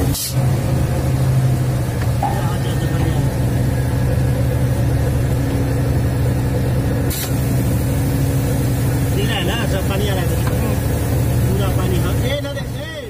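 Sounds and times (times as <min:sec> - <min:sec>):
engine droning steadily: 0:00.0 - 0:13.0.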